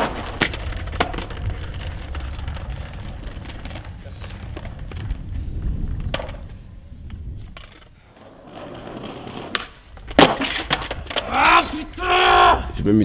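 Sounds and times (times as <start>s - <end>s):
skateboard clacks: 0.0s - 12.0s
skateboard wheels rolling on paving: 0.0s - 13.0s
skateboard loud smack: 9.4s - 11.8s.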